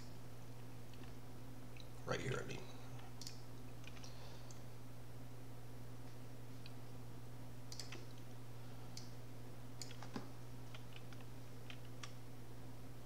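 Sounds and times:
low electrical hum: 0.0 - 13.0
computer mouse clicks: 3.2 - 4.6, 7.7 - 8.2, 9.8 - 12.2.

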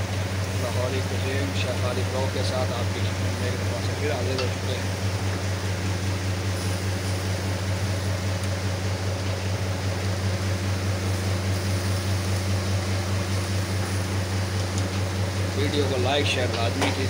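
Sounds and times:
electric fan motor hum: 0.0 - 17.0.

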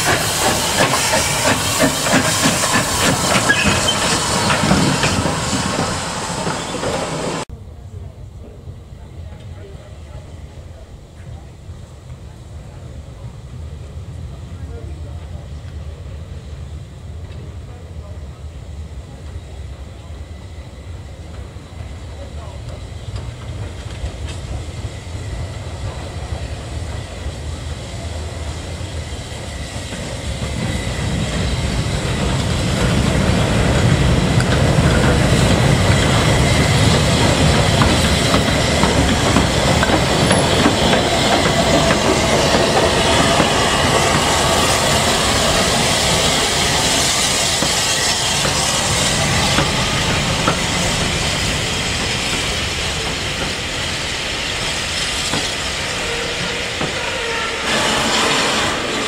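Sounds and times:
steam locomotive rolling slowly: 0.0 - 59.0.

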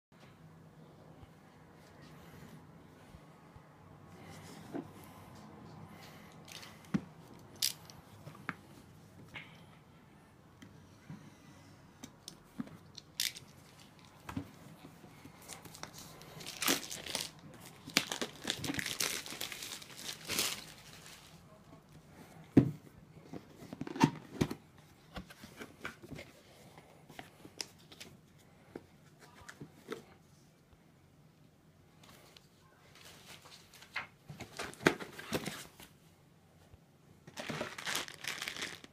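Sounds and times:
cardboard tearing and crinkling: 15.7 - 21.2, 37.3 - 38.9
paper leaflets rustling: 37.3 - 38.9.

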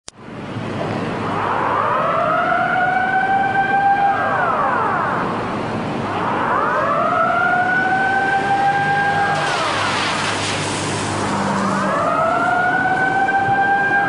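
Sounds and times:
siren wailing: 1.2 - 14.0
rushing floodwater: 5.3 - 13.5.

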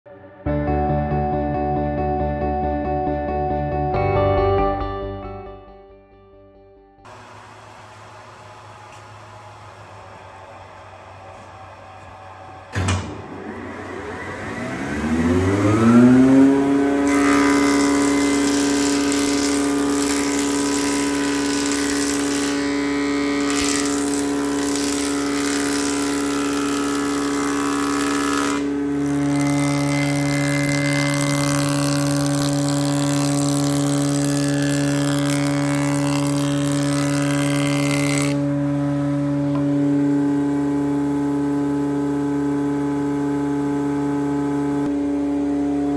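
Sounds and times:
planer motor whine: 7.1 - 45.9
machine switch clunk: 12.7 - 13.3.

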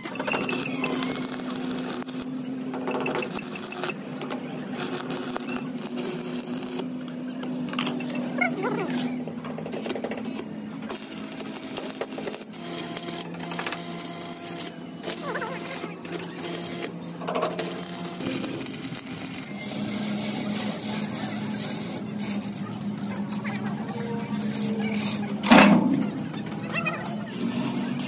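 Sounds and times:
welding arc crackling and sizzling: 0.0 - 9.2, 10.8 - 23.6.

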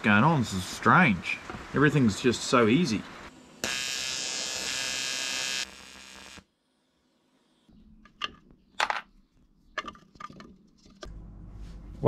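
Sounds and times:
electrical buzz: 3.3 - 6.6.

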